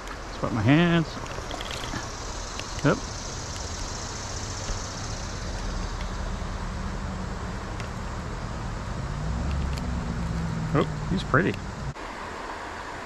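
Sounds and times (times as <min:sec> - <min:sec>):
low engine-like hum: 0:00.0 - 0:13.0
stream water rushing: 0:00.0 - 0:13.0.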